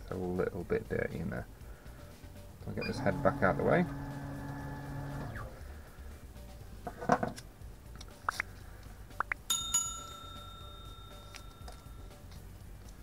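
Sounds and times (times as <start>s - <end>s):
bell-like ding: 9.5s - 12.1s.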